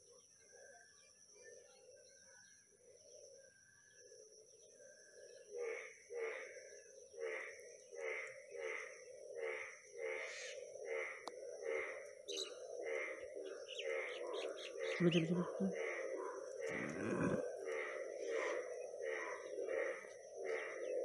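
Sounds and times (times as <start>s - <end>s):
animal calling: 14.1s - 16.0s, 16.6s - 18.6s.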